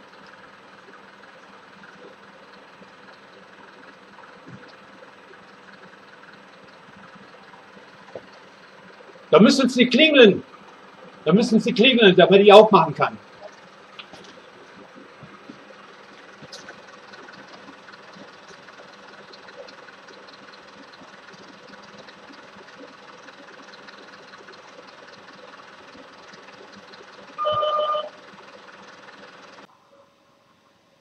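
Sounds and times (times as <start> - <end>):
electric doorbell buzzing: 27.4 - 28.2.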